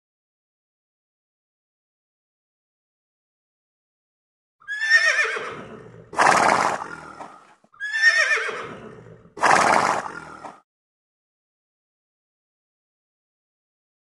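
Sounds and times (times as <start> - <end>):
horse neighing: 4.6 - 10.6.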